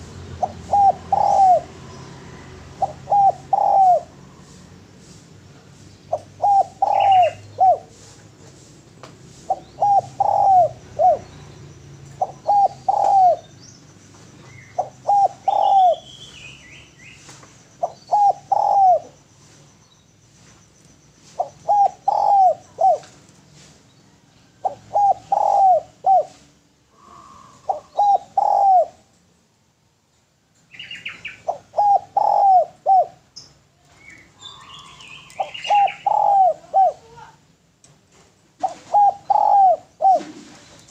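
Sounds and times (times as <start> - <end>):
dove cooing: 0.0 - 4.8, 6.1 - 8.4, 9.4 - 13.5, 14.4 - 16.2, 17.8 - 19.2, 21.2 - 23.3, 24.1 - 29.1, 30.7 - 33.3, 33.9 - 37.4, 38.5 - 40.9
faint bird chirps: 23.9 - 29.0, 30.7 - 37.4.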